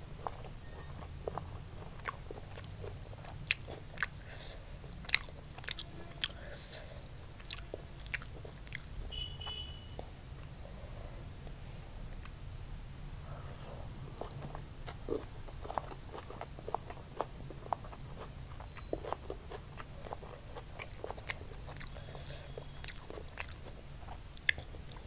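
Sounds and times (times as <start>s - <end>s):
chewing food: 0.0s - 10.1s, 14.2s - 25.0s
low steady hum: 0.0s - 25.0s
wet mouth clicks and crunches: 2.0s - 9.0s, 14.8s - 25.0s.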